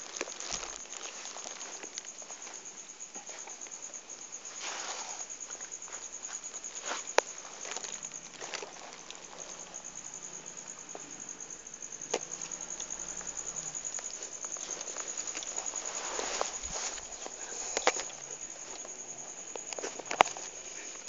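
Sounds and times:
high-pitched insect trill: 0.0 - 21.0
rustling: 0.0 - 21.0.

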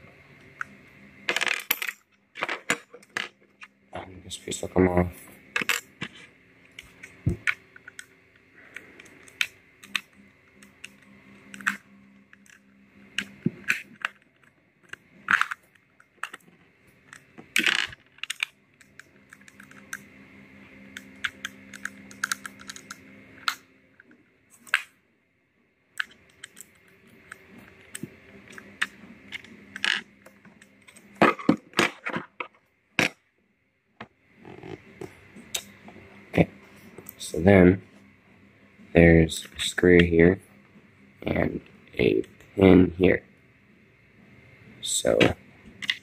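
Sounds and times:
small parts being handled: 13.2 - 20.0, 20.9 - 24.9.

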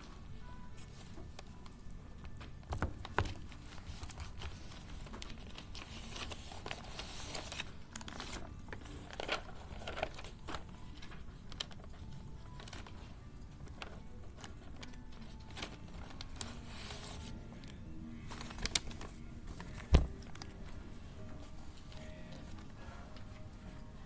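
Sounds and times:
paper rustling: 2.4 - 24.0
paper stack bumps: 18.3 - 20.6.

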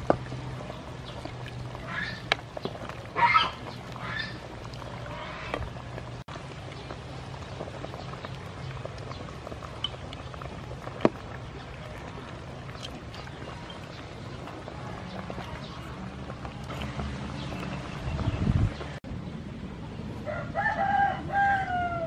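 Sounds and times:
liquid pouring and splashing: 0.0 - 18.9.

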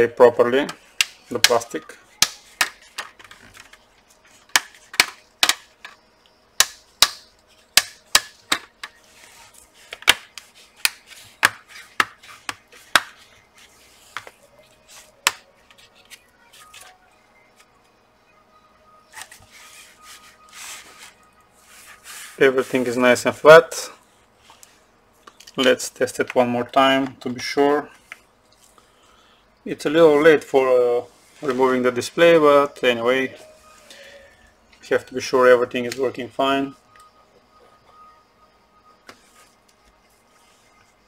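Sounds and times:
soft rubbing on plastic: 19.3 - 22.9.

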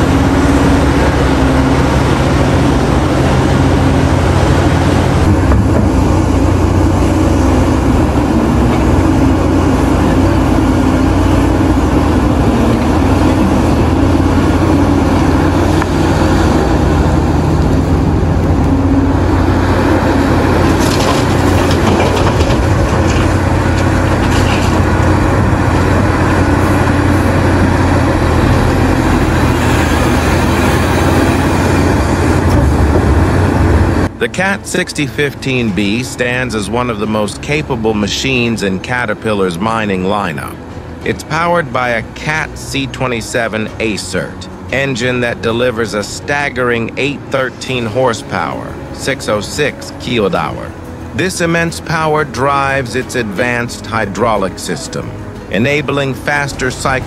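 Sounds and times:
diesel excavator engine running: 0.0 - 57.0
rock and dirt clattering: 20.6 - 25.6.

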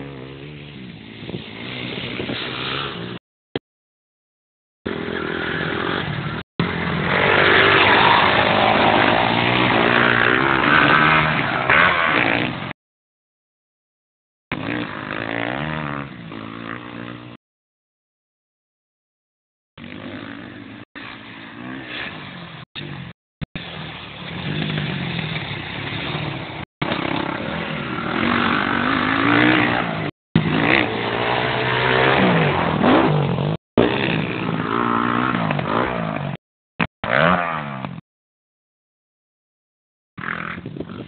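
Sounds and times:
dirt bike engine revving: 0.0 - 3.2, 4.9 - 12.8, 14.5 - 17.4, 19.8 - 36.4, 37.0 - 38.0.

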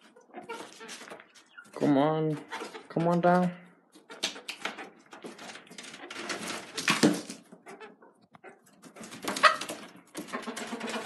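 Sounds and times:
chicken squawking: 0.0 - 2.9, 3.9 - 5.1, 6.6 - 11.0.

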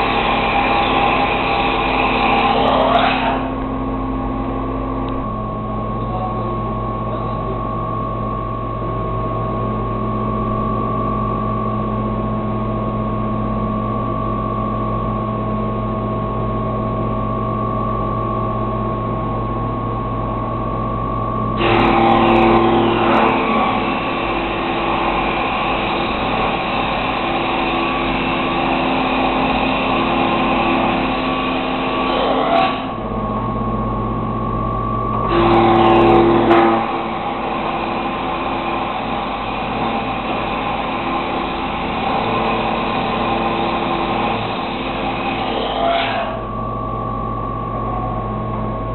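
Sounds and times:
wooden stick being machined: 0.0 - 3.6, 21.6 - 33.0, 35.3 - 46.5
machine motor hum: 0.0 - 48.9.

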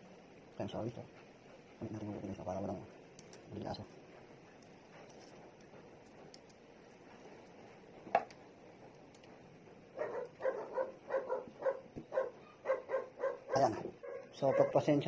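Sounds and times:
dog barking rapidly: 10.0 - 15.0.

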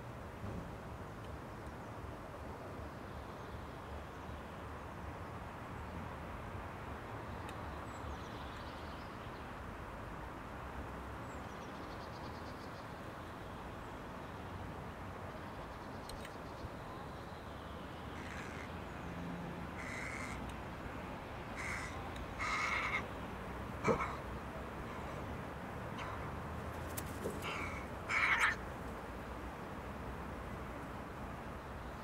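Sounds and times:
outdoor background hiss: 0.0 - 32.0
crow cawing: 18.2 - 18.7, 19.8 - 20.4, 21.6 - 23.1, 23.8 - 24.2, 27.3 - 28.6.

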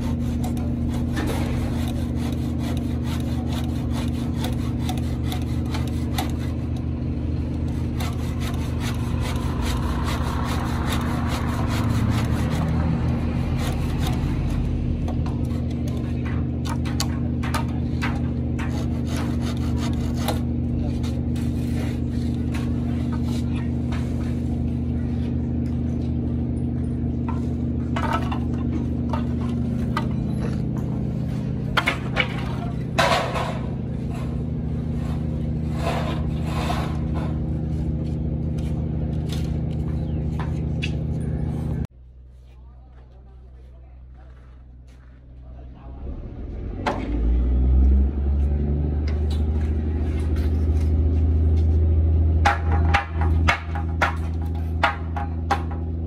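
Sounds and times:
handsaw cutting wood: 0.0 - 6.8, 7.6 - 14.6, 18.6 - 22.2, 33.0 - 37.4
low machine hum: 0.0 - 56.0.

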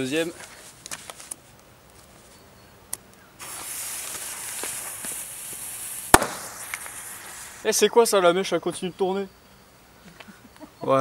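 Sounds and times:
firecracker bang: 3.4 - 7.8
firecracker fuse hissing: 3.4 - 8.2.

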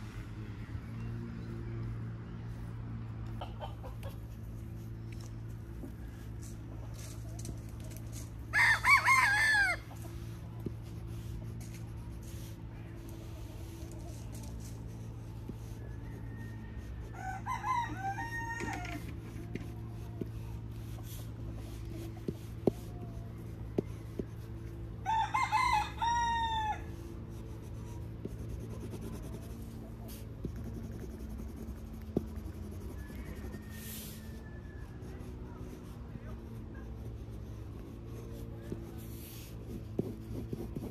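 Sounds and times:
low background hum: 0.0 - 40.9
rooster crowing: 8.5 - 10.0, 15.9 - 19.2, 25.0 - 27.0, 32.7 - 35.2.

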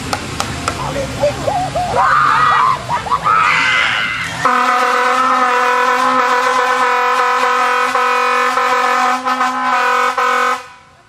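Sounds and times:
air horn blast: 4.4 - 11.0.

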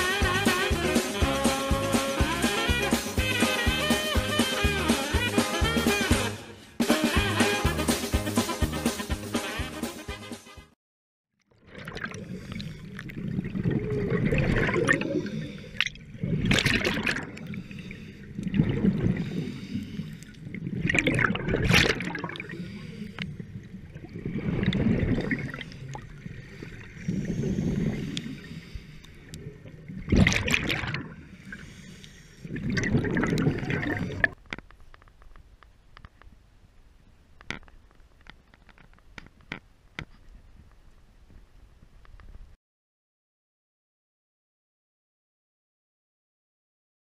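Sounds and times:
underwater bubbling exhalations: 11.6 - 34.4
diver breathing through regulator: 15.0 - 15.9, 17.4 - 18.4, 19.0 - 20.4, 22.4 - 23.5, 25.5 - 29.4, 31.2 - 32.6.

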